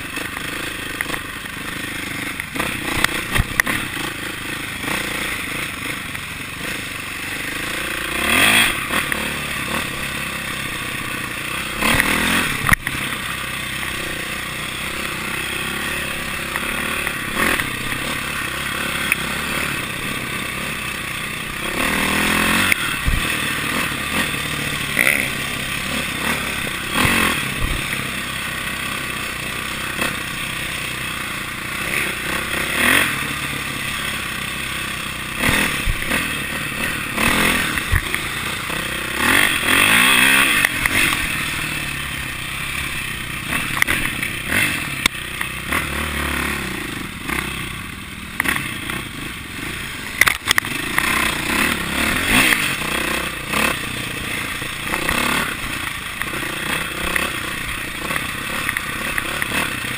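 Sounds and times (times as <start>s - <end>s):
bike knocking and rattling: 0.0s - 59.9s
dirt bike engine revving: 0.0s - 59.9s.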